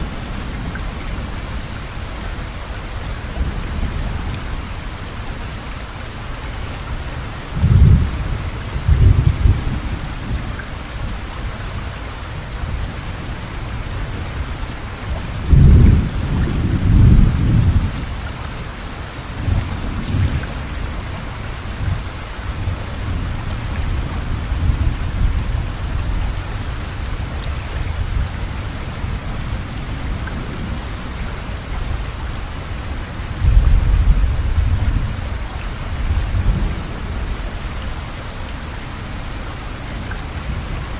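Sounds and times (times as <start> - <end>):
steady rain falling: 0.0 - 40.9
thunder rumbling: 7.5 - 10.5, 15.1 - 18.2, 33.2 - 37.7.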